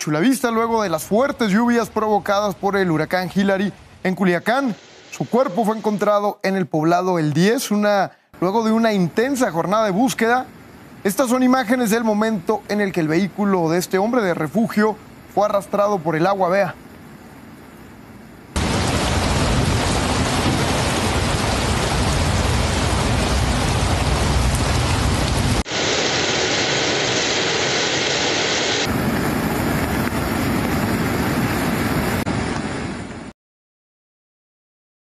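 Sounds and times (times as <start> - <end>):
rainstorm: 0.0 - 33.3.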